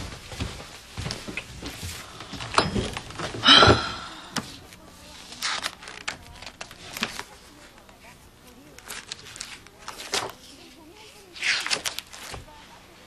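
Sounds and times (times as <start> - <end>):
book pages rustling: 4.7 - 12.6.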